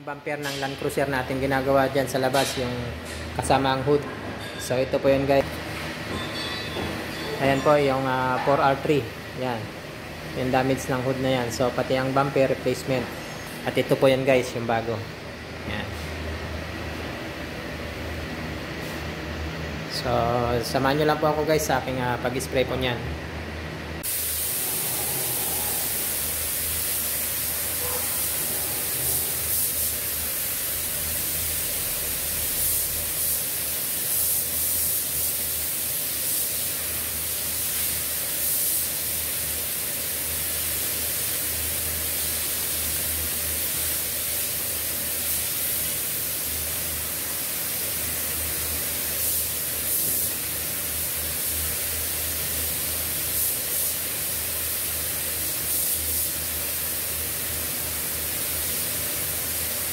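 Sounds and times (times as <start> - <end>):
spray gun hissing: 24.0 - 59.9.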